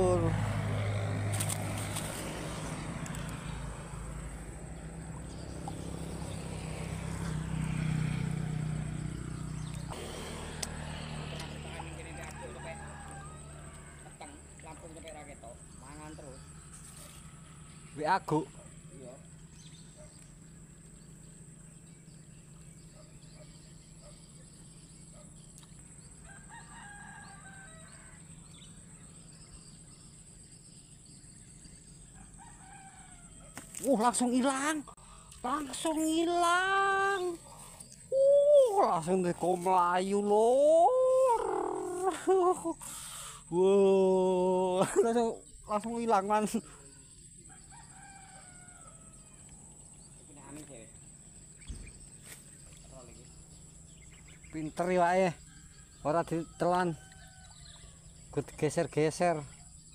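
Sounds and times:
vehicle engine humming: 0.0 - 26.4, 34.0 - 44.6
rooster crowing: 11.7 - 14.4, 26.2 - 28.6, 32.2 - 33.6, 47.4 - 49.5, 55.4 - 58.0.

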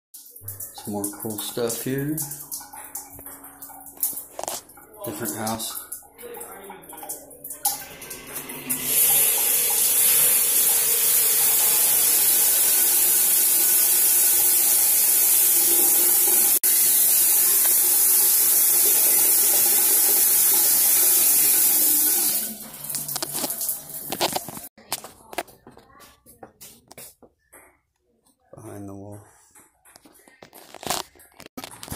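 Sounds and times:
shower water spraying: 0.2 - 24.7.

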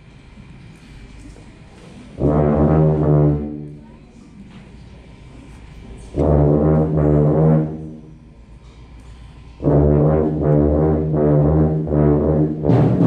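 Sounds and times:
concert band playing chords: 9.6 - 13.0.

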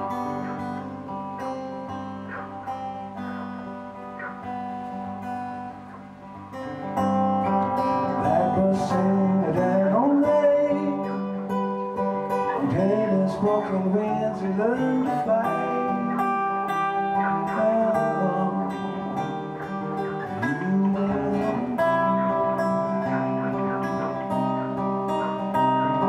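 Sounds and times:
acoustic guitar: 0.0 - 26.0
man singing: 8.1 - 11.6, 12.3 - 25.2.

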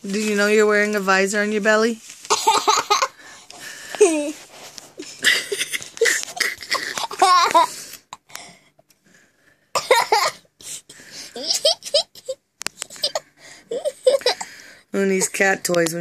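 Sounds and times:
breathy laughter: 5.0 - 8.4, 11.2 - 14.6.

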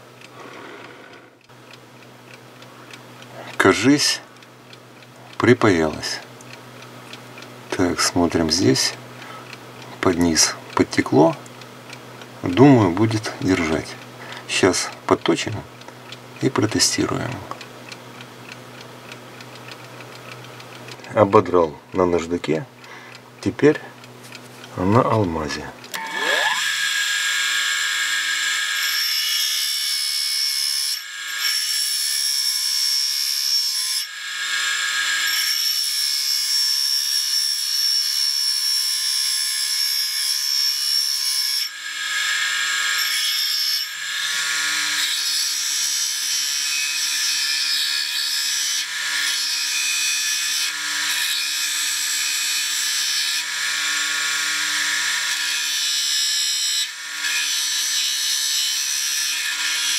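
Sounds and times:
grinder motor hum: 0.0 - 2.4, 19.5 - 28.9.

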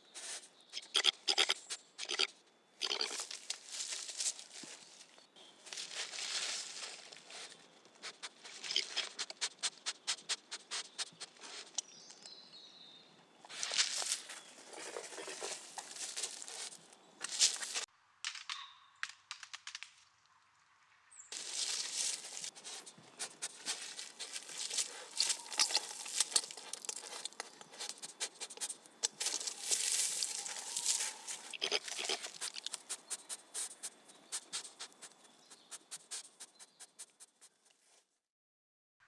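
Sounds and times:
rustling of dry bedding: 3.4 - 8.6, 29.2 - 35.3.

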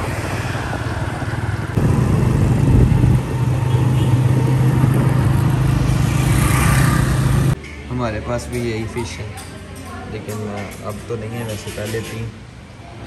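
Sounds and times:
wind rushing: 0.0 - 7.6
motorcycle engine running: 1.8 - 7.6.

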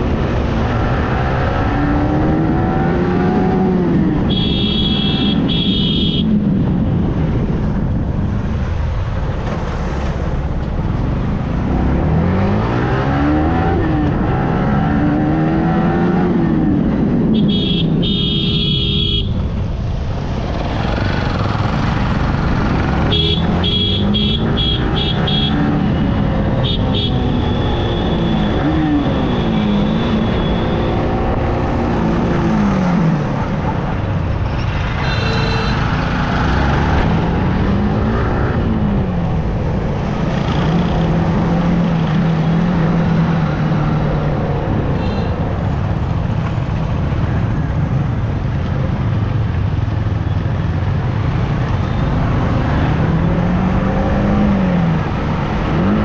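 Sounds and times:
wind and road noise: 0.0 - 56.0
vehicle horns tooting: 4.3 - 6.3, 23.1 - 25.6, 35.0 - 36.0.

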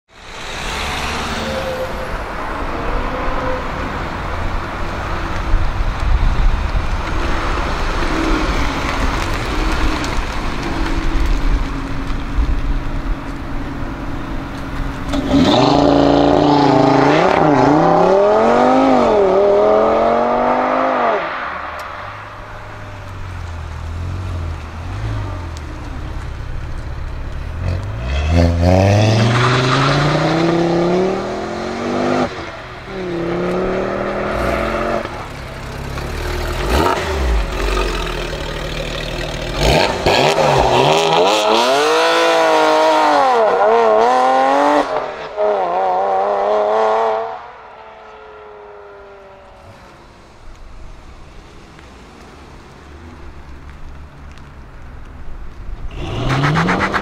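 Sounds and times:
car engine and road noise: 0.0 - 57.0
car engine accelerating hard: 27.6 - 47.5
car engine rising pull: 55.9 - 57.0.

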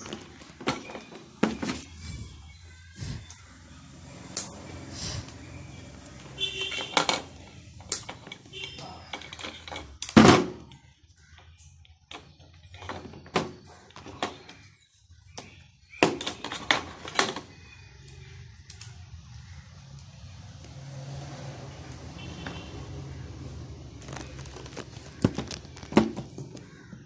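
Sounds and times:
tools and parts clicking on table: 6.7 - 10.2.

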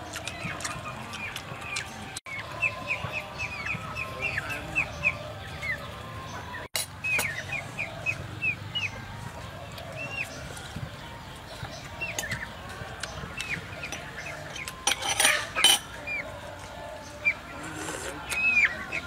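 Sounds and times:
birds chirping: 0.0 - 19.0.

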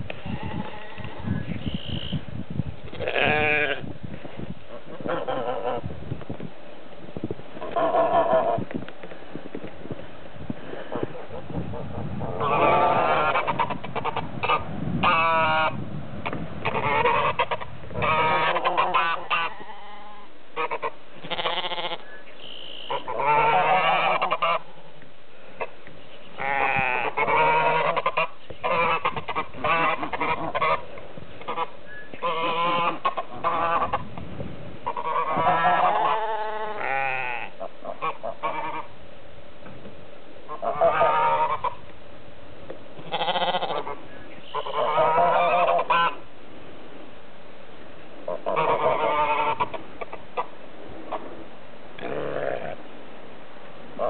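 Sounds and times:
geese honking: 4.7 - 5.9, 7.6 - 8.6, 12.4 - 24.7, 25.6 - 34.1, 34.8 - 38.9, 40.5 - 41.8, 43.0 - 46.3, 48.2 - 51.3.

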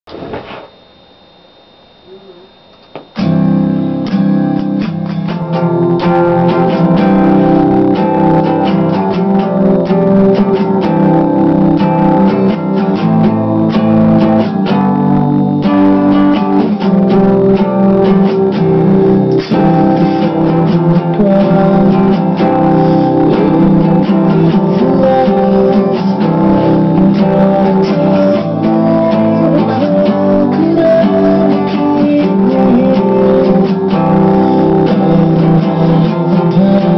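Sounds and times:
acoustic guitar playing: 2.1 - 36.9.

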